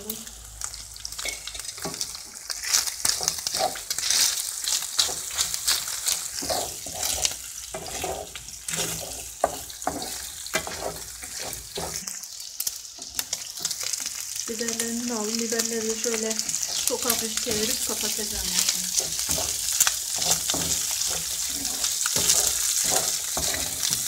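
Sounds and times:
chicken sizzling in oil: 0:00.0 - 0:24.0
wooden spoon scraping pan: 0:02.6 - 0:12.1, 0:16.4 - 0:24.0.

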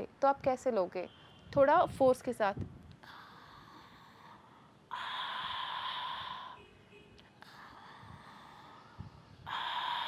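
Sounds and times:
woman breathing in forcefully: 0:03.0 - 0:06.6, 0:07.4 - 0:10.0
woman breathing out forcefully: 0:03.0 - 0:06.6, 0:08.0 - 0:10.0.

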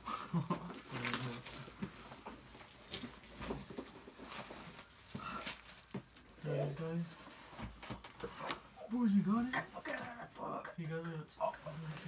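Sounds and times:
cardboard packaging rustling: 0:00.3 - 0:06.5.

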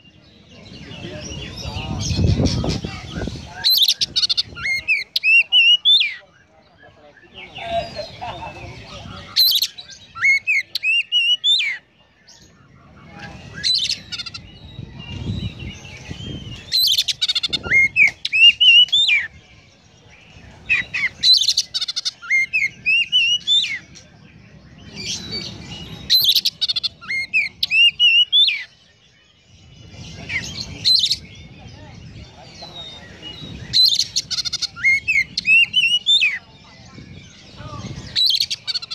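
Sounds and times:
bird singing chirps and whistles: 0:09.0 - 0:19.4, 0:20.2 - 0:31.6, 0:32.6 - 0:38.9.

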